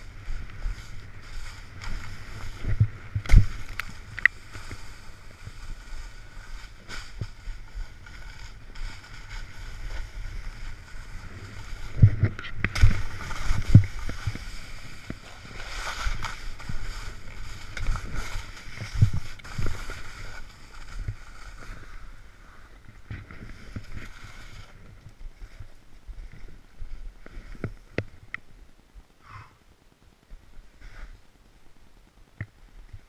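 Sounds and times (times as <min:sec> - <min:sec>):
wind on microphone: 0:00.0 - 0:22.0
snowboard scraping over snow: 0:00.0 - 0:28.2.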